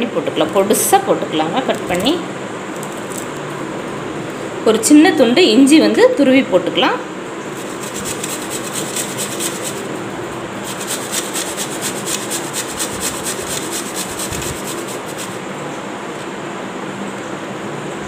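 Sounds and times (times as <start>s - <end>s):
ginger rasping on grater: 7.5s - 15.4s.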